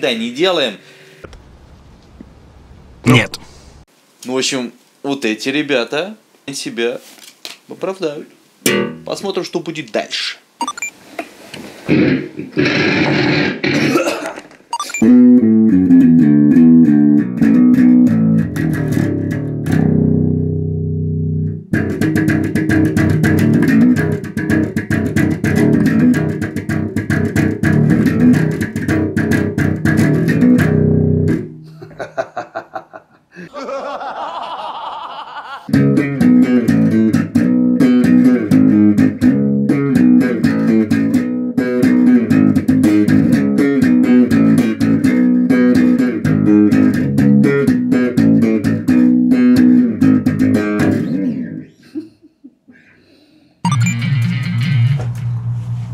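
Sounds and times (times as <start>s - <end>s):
electric bass guitar riffs: 8.6s - 9.1s, 11.9s - 14.1s, 15.0s - 31.8s, 35.7s - 51.6s, 53.7s - 55.5s.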